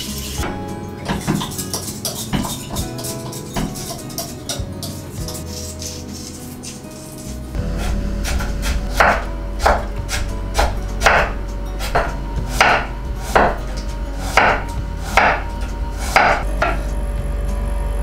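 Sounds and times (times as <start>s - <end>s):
knife chopping on cutting board: 7.6s - 16.8s.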